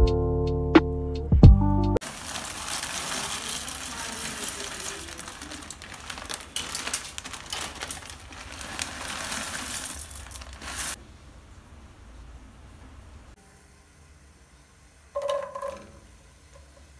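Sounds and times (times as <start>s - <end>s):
plastic bag crinkling: 2.0s - 11.0s.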